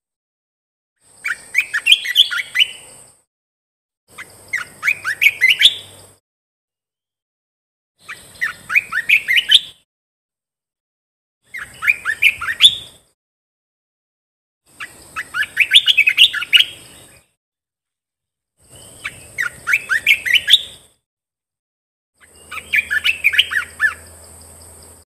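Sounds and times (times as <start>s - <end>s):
bird singing rising notes: 1.2s - 3.1s, 4.1s - 6.0s, 8.0s - 9.8s, 11.5s - 13.1s, 14.7s - 17.2s, 18.6s - 20.9s, 22.2s - 24.6s.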